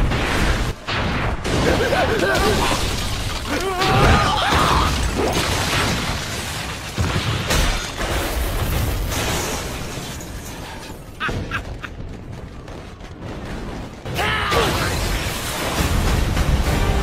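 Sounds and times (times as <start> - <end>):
explosions rumbling: 11.0 - 17.0.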